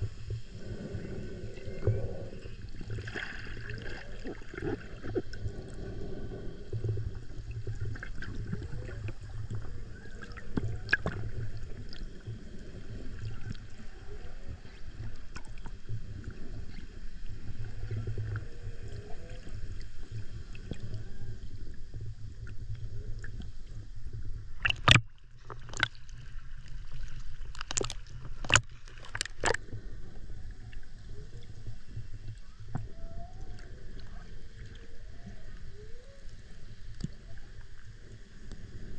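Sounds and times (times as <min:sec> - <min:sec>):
underwater rumble: 0:00.0 - 0:38.9
whale song calls: 0:17.6 - 0:19.8, 0:20.6 - 0:21.6, 0:32.4 - 0:37.6.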